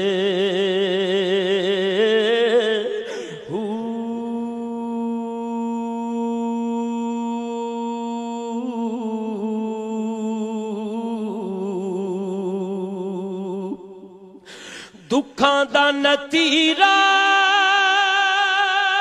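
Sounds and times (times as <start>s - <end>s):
rush of breath: 3.0s - 3.5s, 14.4s - 15.1s.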